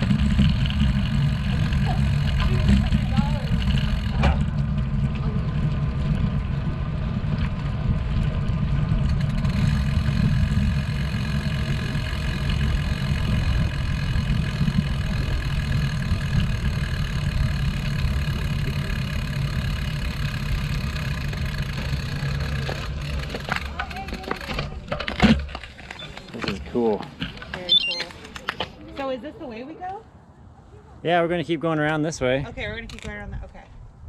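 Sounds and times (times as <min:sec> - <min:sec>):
wind rumbling on microphone: 0:32.4 - 0:34.0.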